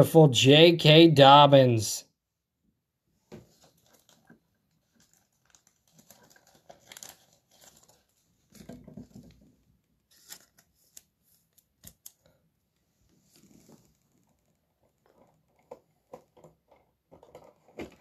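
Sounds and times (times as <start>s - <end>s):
plastic sleeve rustling and clicks: 3.3s - 12.4s, 13.3s - 18.0s.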